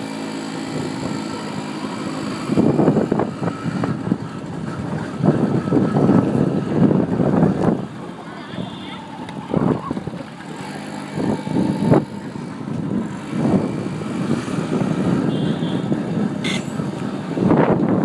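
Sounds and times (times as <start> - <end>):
moped engine running: 0.0 - 18.0
wind noise on microphone: 0.0 - 18.0.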